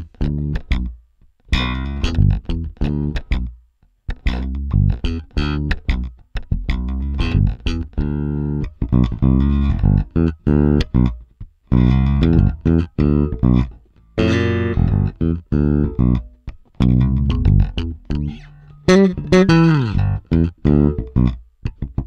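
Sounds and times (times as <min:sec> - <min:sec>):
electric bass guitar: 0:00.0 - 0:22.0.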